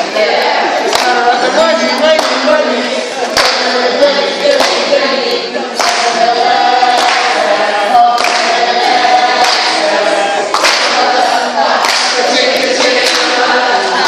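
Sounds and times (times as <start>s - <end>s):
group singing without instruments: 0.0s - 14.0s
hand claps on the beat: 0.8s - 1.2s, 2.1s - 2.5s, 3.4s - 3.8s, 4.6s - 4.9s, 5.8s - 6.3s, 6.9s - 7.4s, 8.1s - 8.6s, 9.3s - 9.9s, 10.5s - 13.5s.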